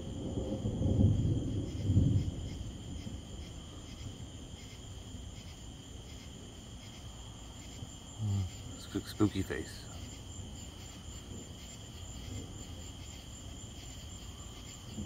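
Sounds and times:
thunder rumbling: 0.0 - 4.6
night insects chirring: 0.0 - 15.0.

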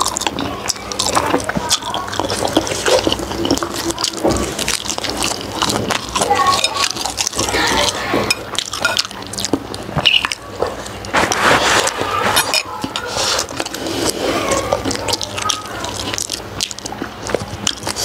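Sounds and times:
person chewing food: 0.0 - 18.0.

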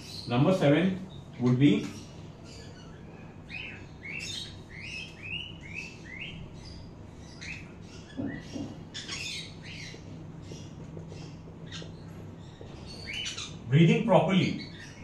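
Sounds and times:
parrots chirping: 0.0 - 15.0.

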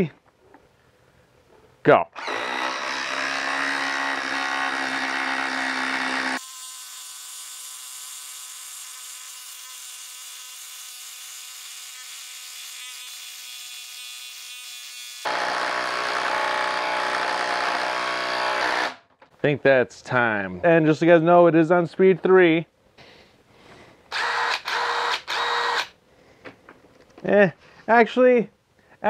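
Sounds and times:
impact driver driving screw into log: 2.2 - 3.3, 24.1 - 25.9.

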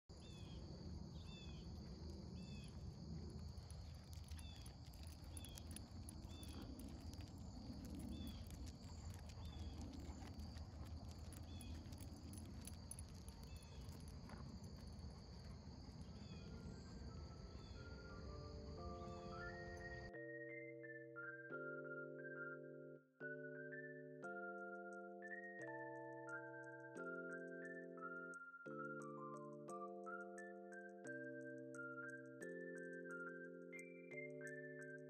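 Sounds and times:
crickets trilling: 0.2 - 20.1.

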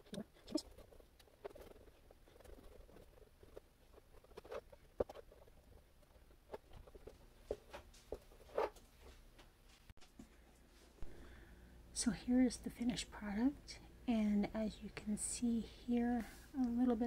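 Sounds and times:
paintbrush brushing on paper: 0.0 - 5.5.

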